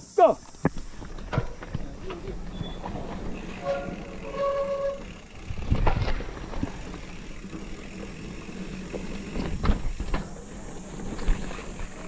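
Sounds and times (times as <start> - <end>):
bike rattling: 0.4 - 12.0
bike tyres rolling over dirt: 0.4 - 12.0
bike knocks and jolts: 5.4 - 12.0.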